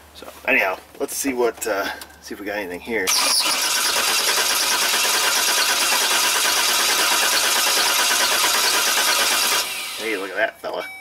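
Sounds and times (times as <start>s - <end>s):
starter motor cranking engine: 3.1s - 10.4s.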